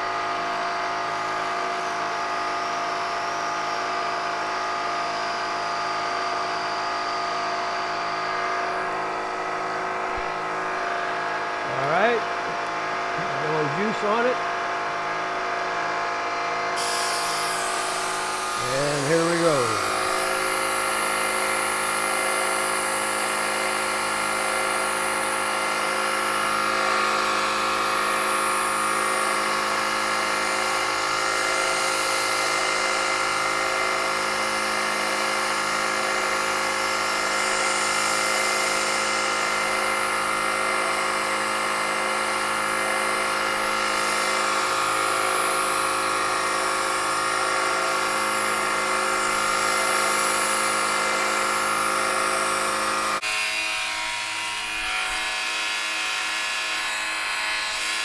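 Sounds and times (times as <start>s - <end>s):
milling machine whining: 6.2s - 31.5s.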